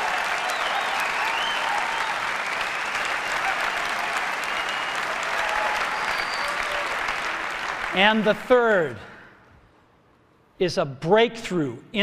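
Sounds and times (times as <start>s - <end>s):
voices cheering: 0.0s - 7.8s
audience applauding: 0.0s - 8.4s.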